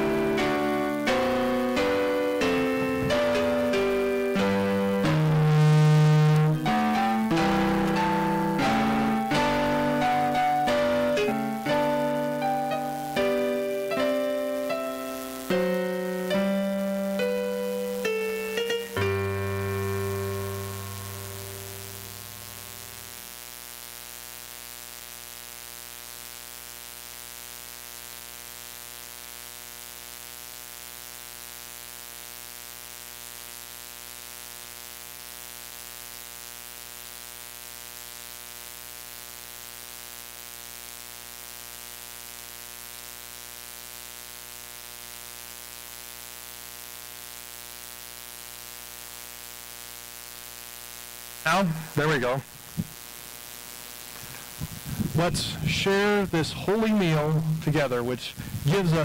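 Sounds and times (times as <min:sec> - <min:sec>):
keyboard notes: 0:00.0 - 0:23.2
electrical buzz and hiss: 0:00.0 - 0:59.0.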